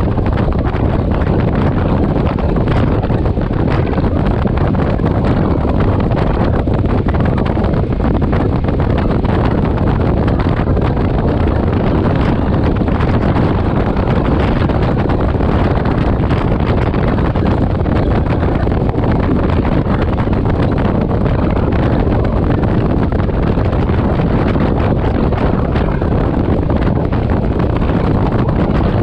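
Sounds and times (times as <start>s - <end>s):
motorcycle engine running: 0.0s - 29.0s
wind rushing on microphone: 0.0s - 29.0s.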